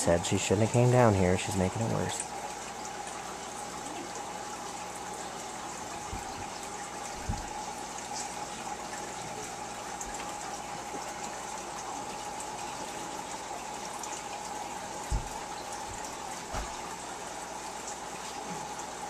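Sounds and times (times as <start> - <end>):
water trickling in a tank: 0.0 - 19.0
soft low thumps: 7.2 - 7.6, 15.1 - 16.0.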